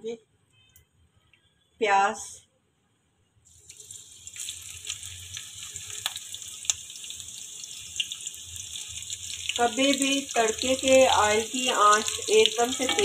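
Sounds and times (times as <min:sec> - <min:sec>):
onions sizzling in oil: 0:03.5 - 0:13.0.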